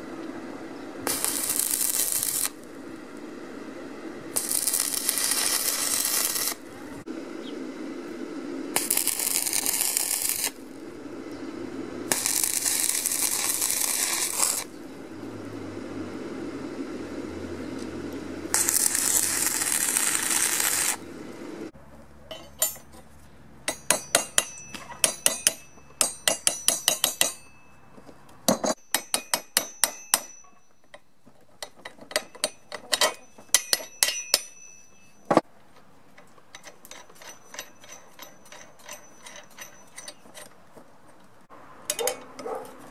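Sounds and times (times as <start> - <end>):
arc welding crackling hiss: 1.0 - 15.2, 15.9 - 21.7
metal parts clinking on steel plate: 31.6 - 35.4, 36.5 - 40.5.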